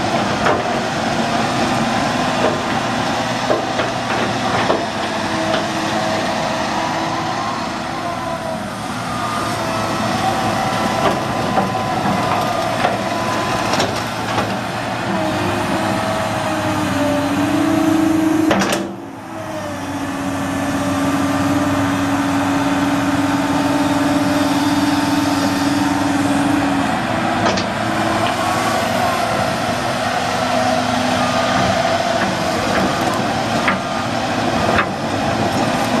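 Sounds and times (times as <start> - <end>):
excavator diesel engine under load: 0.0 - 36.0
hydraulic whine: 0.0 - 36.0.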